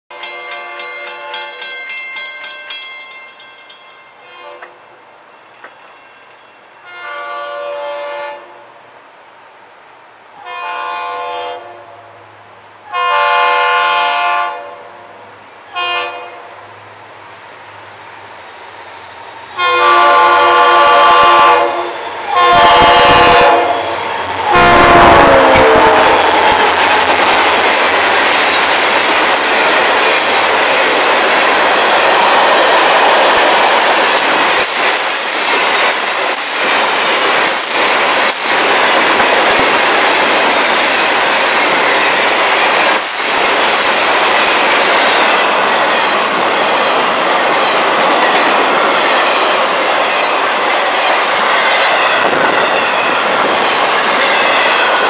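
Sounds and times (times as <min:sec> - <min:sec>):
freight cars clacking on rails: 0:00.1 - 0:06.7, 0:25.5 - 0:55.0
train rumble: 0:00.1 - 0:55.0
locomotive horn blasts: 0:04.2 - 0:04.8, 0:06.8 - 0:08.7, 0:10.4 - 0:12.1, 0:12.9 - 0:14.9, 0:15.7 - 0:16.5, 0:19.6 - 0:26.5.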